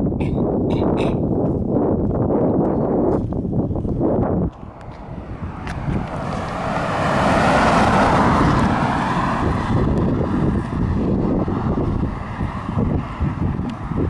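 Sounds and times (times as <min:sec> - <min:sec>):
car passing close by: 0:04.4 - 0:14.0.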